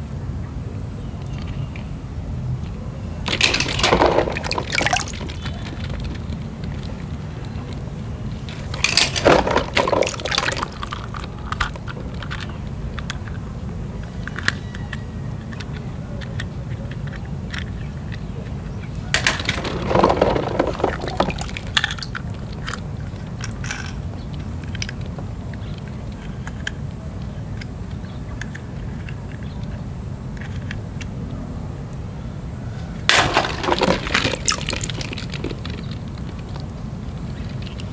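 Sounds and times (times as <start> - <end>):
low background rumble: 0.0 - 37.9
water sloshing and splashing: 3.3 - 12.4, 19.0 - 23.9, 33.1 - 37.9
plastic clicking against plastic: 3.3 - 31.1.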